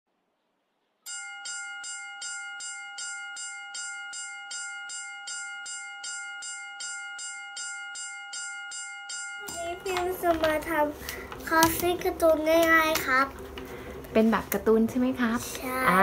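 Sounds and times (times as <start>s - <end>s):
railroad crossing bell ringing: 1.1s - 10.9s.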